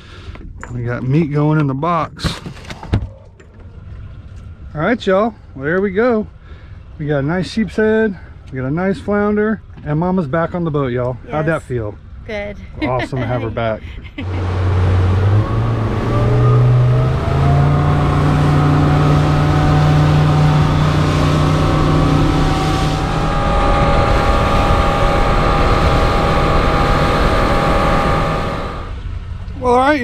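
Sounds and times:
outboard motor running: 12.3 - 29.0.

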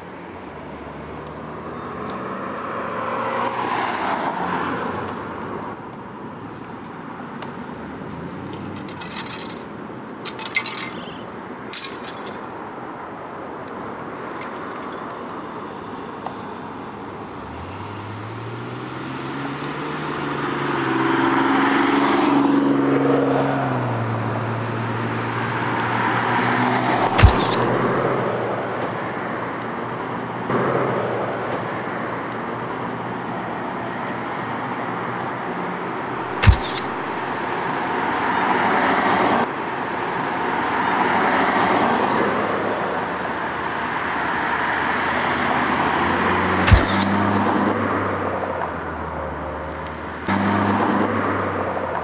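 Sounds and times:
cars passing: 0.0 - 52.0
sharp knocks: 27.1 - 28.0, 36.2 - 37.3, 46.6 - 47.4.

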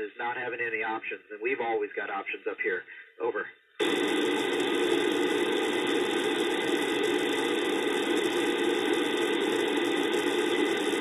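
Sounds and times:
radio static hiss: 3.8 - 11.0.

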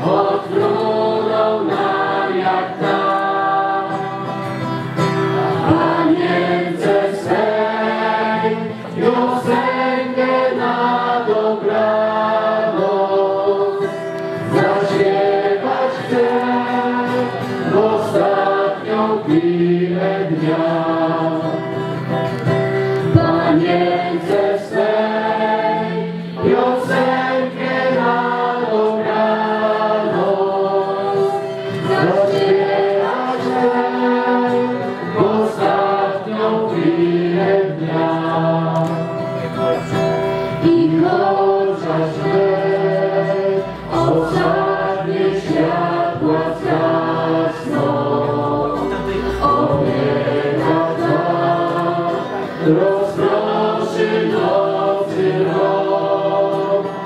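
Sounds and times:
crowd singing a hymn: 0.0 - 57.0.

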